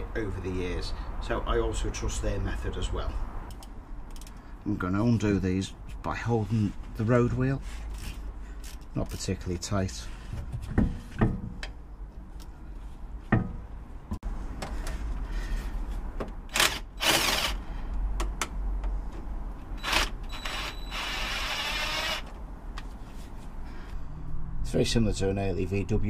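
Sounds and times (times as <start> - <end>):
cordless drill spinning: 16.5 - 17.6, 19.8 - 22.3.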